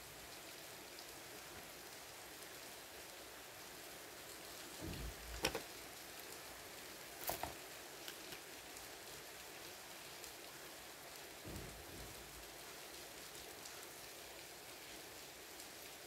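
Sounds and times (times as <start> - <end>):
cards tapping on wooden table: 5.3 - 5.6.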